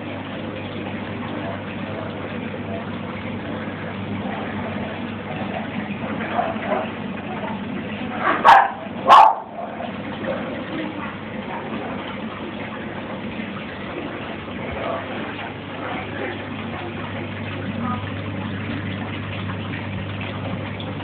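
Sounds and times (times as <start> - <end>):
bubbling running water: 0.0 - 21.0
short loud barks: 8.4 - 9.5.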